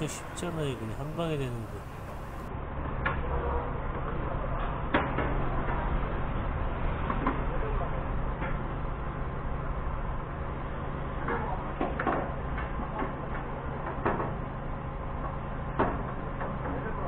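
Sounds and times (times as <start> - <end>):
forklift engine idling: 0.0 - 2.5.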